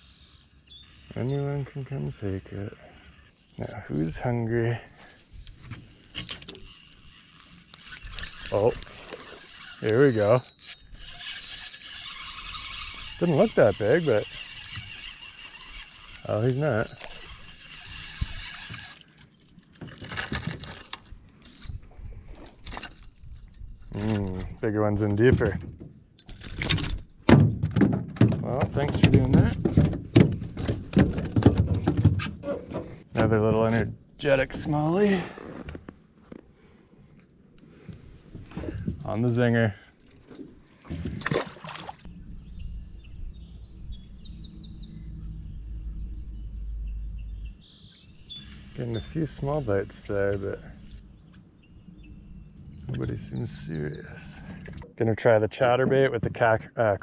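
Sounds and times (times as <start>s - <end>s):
small birds chirping: 0.0s - 4.4s, 42.0s - 54.6s
light metallic rattling: 6.0s - 33.0s
fishing reel clicks: 6.3s - 19.2s
fish splashing into water: 41.2s - 42.0s.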